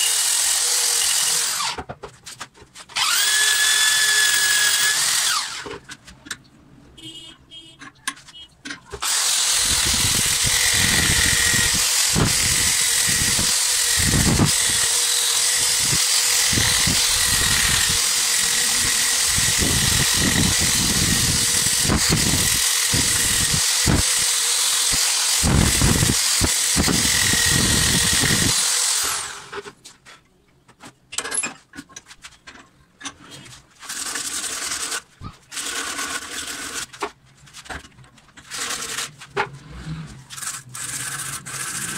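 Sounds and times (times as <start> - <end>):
grinder disc whining: 2.9 - 5.9, 8.8 - 29.6.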